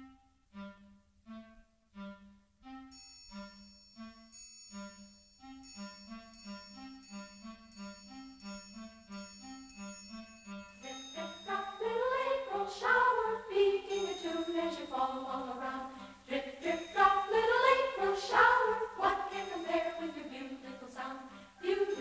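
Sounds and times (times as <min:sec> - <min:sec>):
person singing with music: 0:10.8 - 0:22.0.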